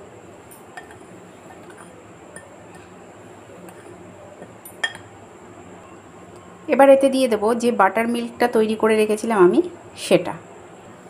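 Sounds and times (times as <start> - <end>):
spoon scraping in glass bowl: 0.8 - 2.9, 3.7 - 4.0
spoon clinking against glass: 4.6 - 5.1.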